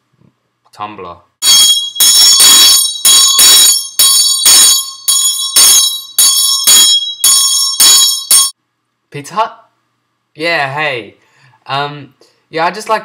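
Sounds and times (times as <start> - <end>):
hand bell ringing: 1.4 - 8.6.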